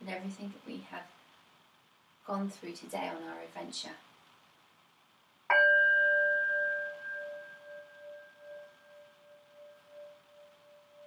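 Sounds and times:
singing bowl ringing: 5.5 - 11.0.

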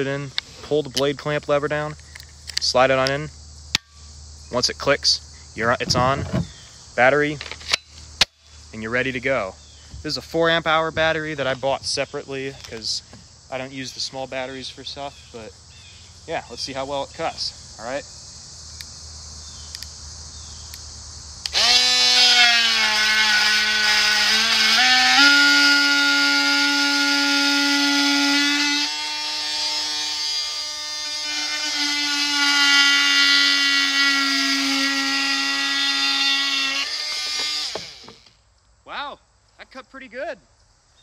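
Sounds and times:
crickets chirping: 0.0 - 41.0
oscillating tool cutting plywood: 5.7 - 6.6, 21.5 - 38.3.

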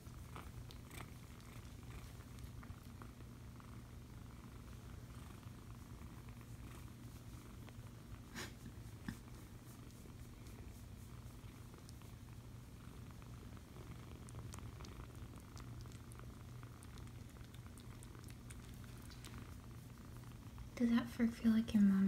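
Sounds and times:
kitten purring: 0.0 - 22.0
faint ticks: 13.9 - 19.5.

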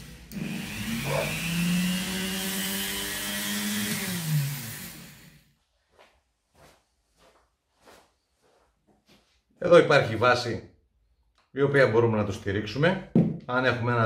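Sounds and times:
rotary tool motor whining: 0.0 - 5.5.

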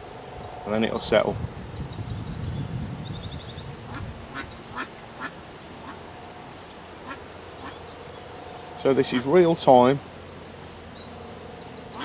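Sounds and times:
small bird chirping: 0.0 - 6.0, 10.1 - 12.0.

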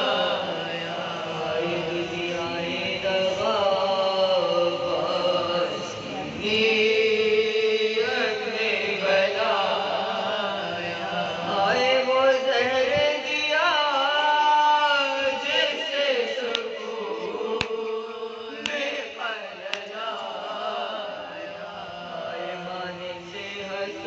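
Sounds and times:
women chanting: 16.5 - 24.0.

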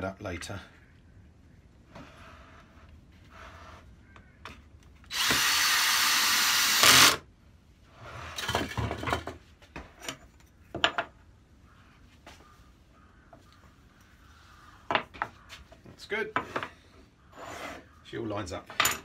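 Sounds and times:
cordless drill driving screw: 5.1 - 7.2
scrapes and knocks of handling: 8.0 - 11.1, 14.8 - 17.9.

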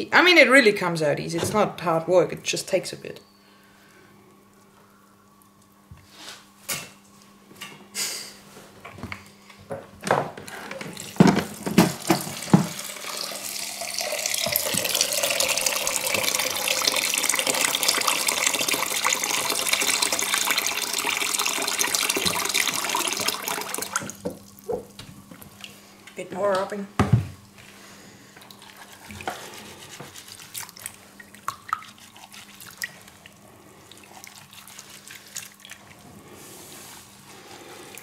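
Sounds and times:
kitchen tap running into bowl: 11.0 - 24.9.

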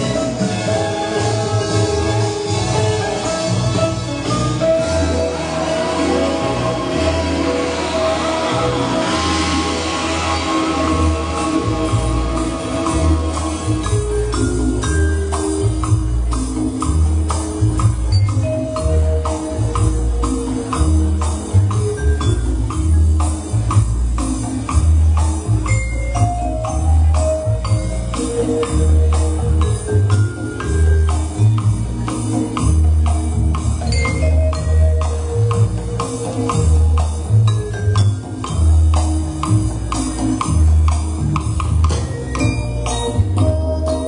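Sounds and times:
soul dance music with heavy bass: 0.0 - 44.0.

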